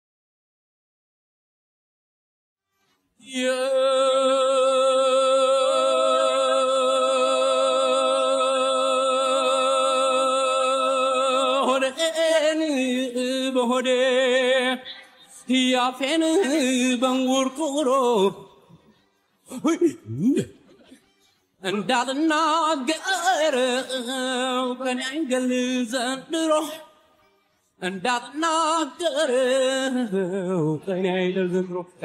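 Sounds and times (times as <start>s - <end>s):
man singing unaccompanied: 3.2s - 18.7s, 21.6s - 27.0s, 27.8s - 32.0s.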